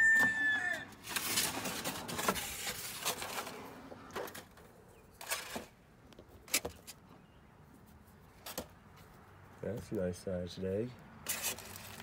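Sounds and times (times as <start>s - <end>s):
rustling wood shavings: 1.0s - 3.8s, 11.2s - 12.0s.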